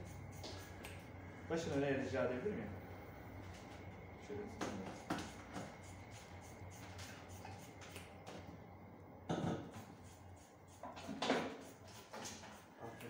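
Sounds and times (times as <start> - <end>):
scissors snipping hair: 0.3 - 1.0, 6.8 - 8.2.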